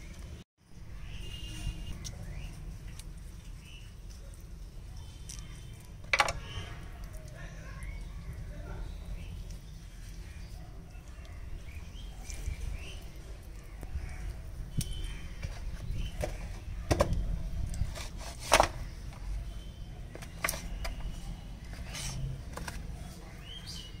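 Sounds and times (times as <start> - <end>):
birds chirping faintly: 0.0 - 24.0.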